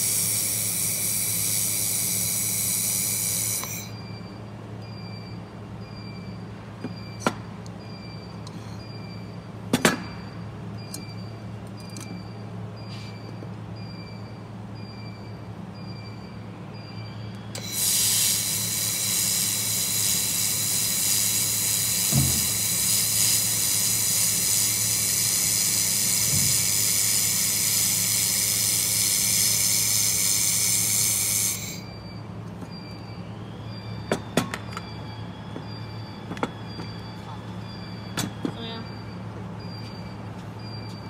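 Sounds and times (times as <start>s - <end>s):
laser welder hiss with high whine: 0.0s - 4.0s, 17.6s - 31.9s.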